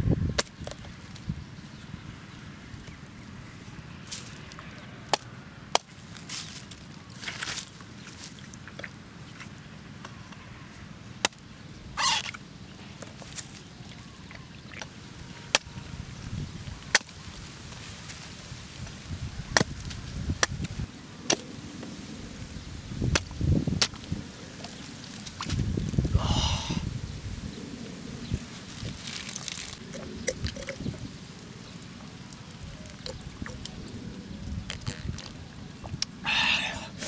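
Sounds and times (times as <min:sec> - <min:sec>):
machete chopping coconut husks: 0:05.1 - 0:06.4, 0:16.9 - 0:17.2, 0:19.5 - 0:21.5, 0:23.0 - 0:24.0.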